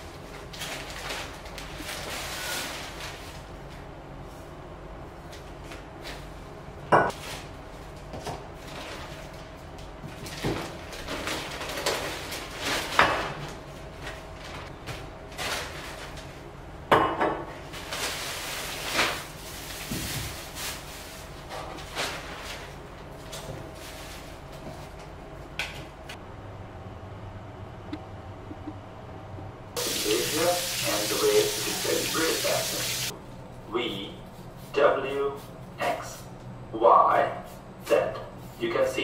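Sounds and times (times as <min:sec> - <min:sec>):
plastic bag rustling: 0:00.0 - 0:03.7, 0:08.6 - 0:09.6, 0:10.2 - 0:16.5, 0:17.6 - 0:25.0.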